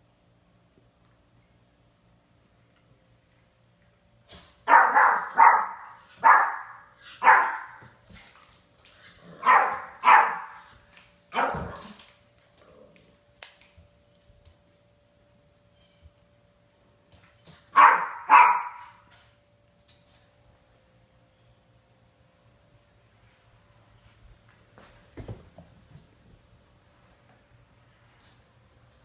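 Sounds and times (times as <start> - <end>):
puppy barking: 4.6 - 7.8, 9.3 - 10.7, 11.3 - 12.0, 17.7 - 19.0.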